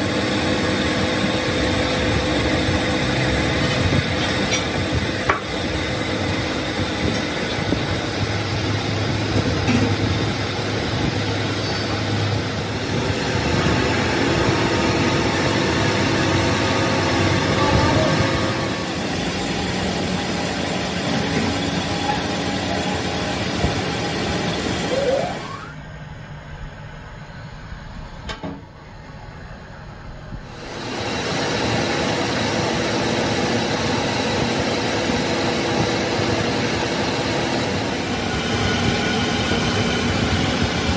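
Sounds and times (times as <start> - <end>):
grinding wheel hissing on steel: 0.0 - 25.3
machine drone: 0.0 - 40.9.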